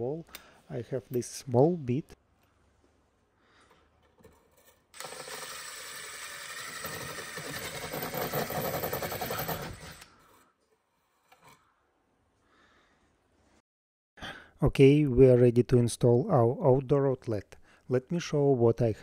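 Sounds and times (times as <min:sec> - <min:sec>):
impact driver drilling: 0:05.0 - 0:10.1.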